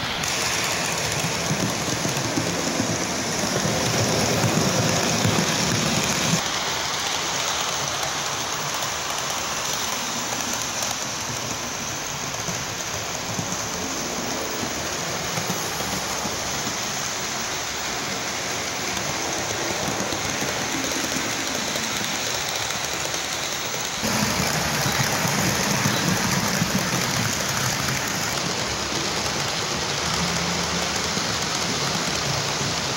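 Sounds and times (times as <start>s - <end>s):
model train wheels rolling on track: 0.0s - 32.9s.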